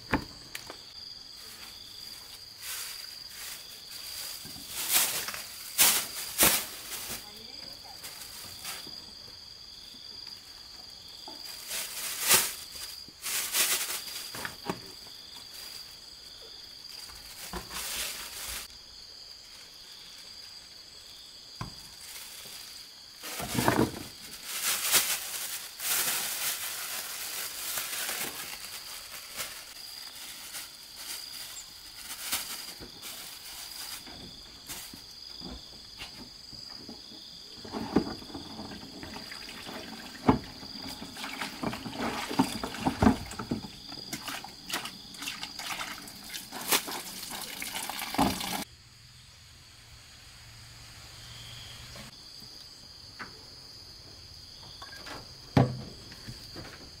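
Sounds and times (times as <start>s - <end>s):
insects droning: 0.0s - 57.0s
plastic bag crinkling: 22.0s - 35.0s.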